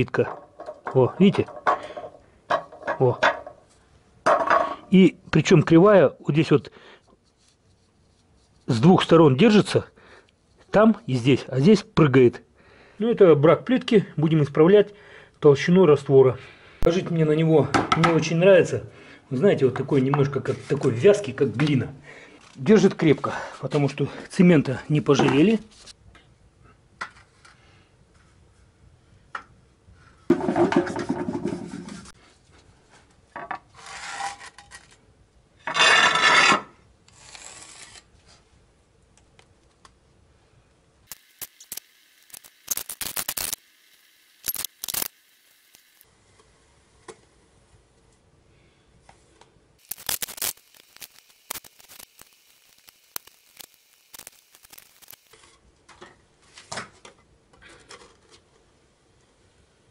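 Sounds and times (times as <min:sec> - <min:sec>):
trowel scraping mortar on concrete: 0:33.7 - 0:34.9, 0:35.6 - 0:38.1.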